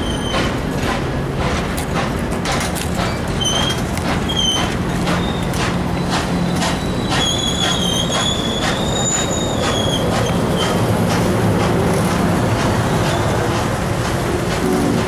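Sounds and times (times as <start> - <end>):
high wheel squeal: 0.0 - 0.5, 3.1 - 10.8
train cars rumbling past: 0.0 - 15.0
wheels clicking over rail joints: 0.0 - 15.0.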